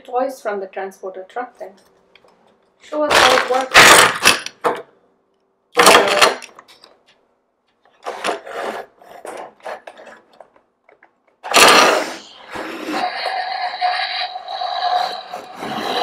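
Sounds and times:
plastic toys knocking and clattering: 3.0 - 5.0, 5.8 - 7.0.

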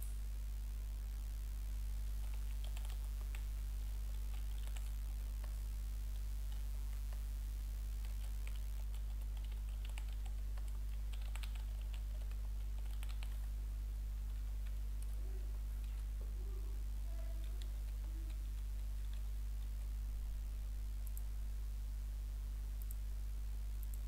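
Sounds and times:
steady low hum: 0.0 - 24.0
computer keyboard typing: 2.2 - 3.4, 4.2 - 4.9, 8.1 - 13.5.

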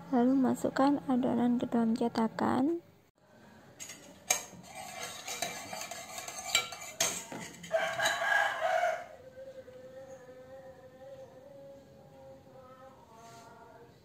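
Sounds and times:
spatula scraping batter in bowl: 3.8 - 8.5
rooster crowing: 7.6 - 10.1.

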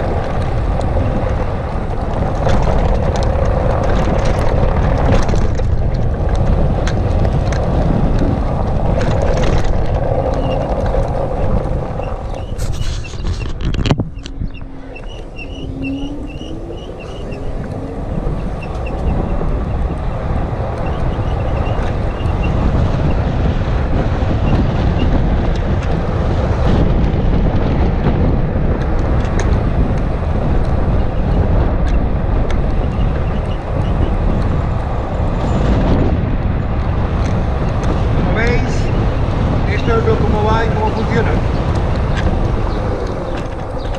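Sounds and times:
scooter tyre road noise: 0.0 - 43.9
wind rushing over microphone: 0.0 - 43.9.

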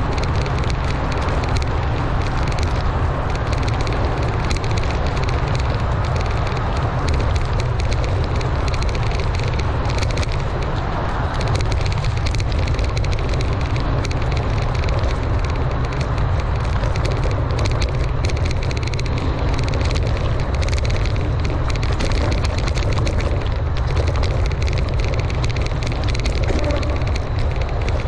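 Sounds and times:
bike rattling: 0.0 - 28.0
tyres crackling over dirt: 0.0 - 28.0
wind rumble on microphone: 0.0 - 28.0.

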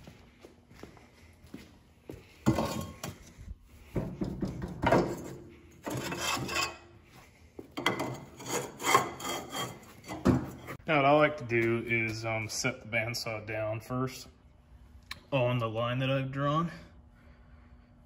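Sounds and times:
steel bar scraping and rubbing: 5.8 - 6.9, 8.0 - 10.8.

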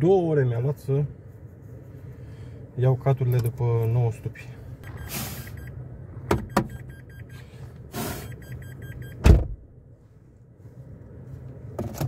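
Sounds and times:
car warning chime beeping: 4.8 - 9.3
car door shutting: 6.2 - 6.9, 9.0 - 9.7.

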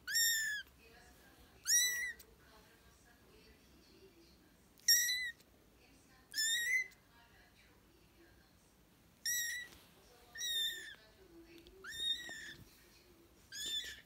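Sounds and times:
kitten meowing: 0.0 - 0.7, 1.6 - 2.2, 4.8 - 5.4, 6.3 - 7.0, 9.2 - 11.0, 11.8 - 12.6, 13.5 - 14.0.

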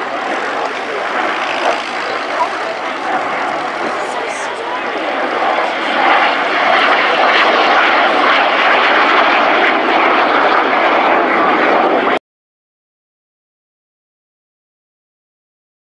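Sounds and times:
jet aircraft flying overhead: 0.0 - 12.2.

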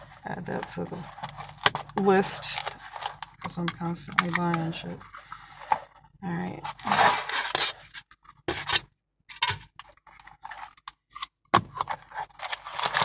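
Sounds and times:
packing paper rustling: 0.0 - 6.0, 6.6 - 8.8, 9.4 - 13.0
styrofoam lid scraping out of box: 6.7 - 10.8, 11.7 - 13.0.

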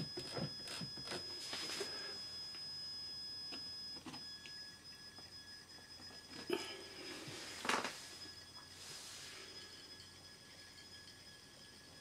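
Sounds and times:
model train motor whine: 5.1 - 12.0.

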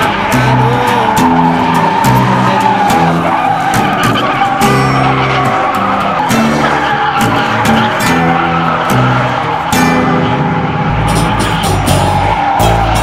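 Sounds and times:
instrumental song with bass: 0.0 - 13.0
tire squeal: 0.0 - 13.0.

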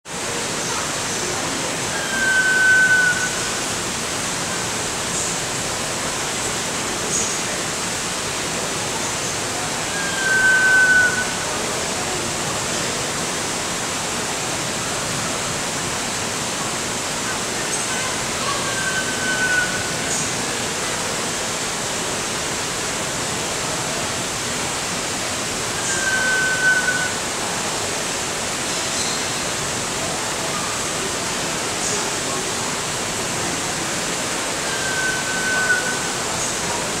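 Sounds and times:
steady rushing hiss: 0.1 - 37.0
bird whistle call: 1.9 - 3.6, 9.9 - 11.6, 18.6 - 20.3, 25.7 - 27.2, 34.6 - 36.3.

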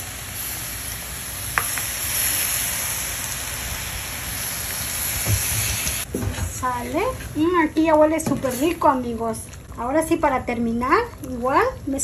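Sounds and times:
sauce sizzling in hot pan: 0.0 - 6.1.

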